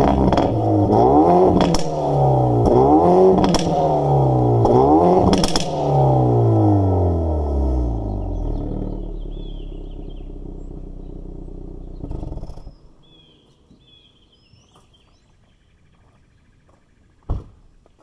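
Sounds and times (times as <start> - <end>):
car engine idling: 0.0 - 14.0
birds chirping: 7.5 - 18.0
footstep on gravel: 14.5 - 18.0.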